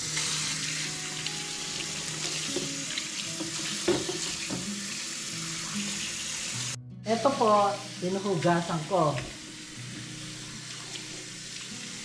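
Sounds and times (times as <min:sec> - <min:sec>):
tap running into sink: 0:01.8 - 0:04.9.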